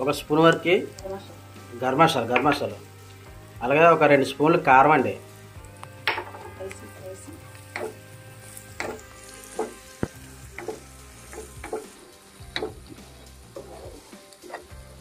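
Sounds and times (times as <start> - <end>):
food sizzling in oil: 0.0 - 15.0
wooden spatula scraping a pan: 12.6 - 14.8.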